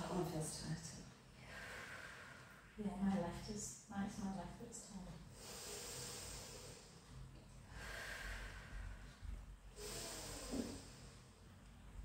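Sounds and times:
person breathing: 1.4s - 2.8s, 5.4s - 11.4s.

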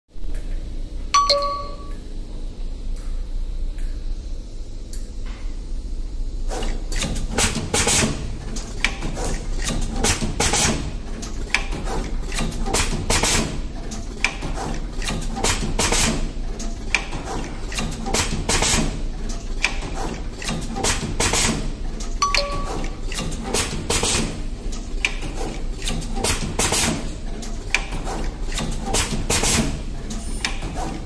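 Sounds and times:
low machine hum: 0.2s - 12.6s
pneumatic machine clacks: 6.4s - 31.0s.

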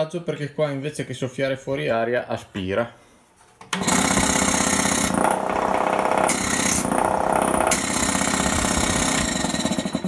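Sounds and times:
air compressor pump running: 3.8s - 10.0s.

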